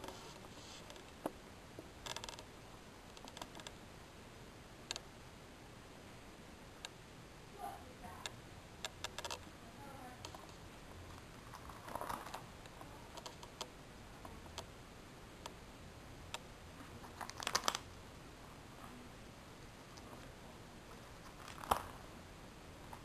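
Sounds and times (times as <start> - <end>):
plastic sleeves crinkling: 17.0 - 17.9, 21.0 - 22.0.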